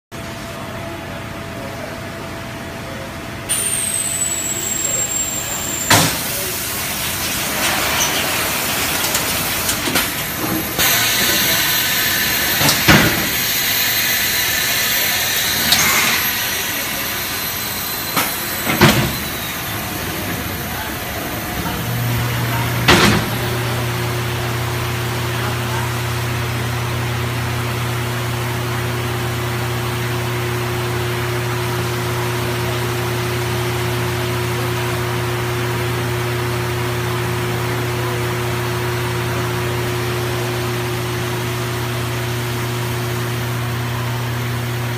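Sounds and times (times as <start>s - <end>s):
machinery hiss: 3.5s - 23.9s.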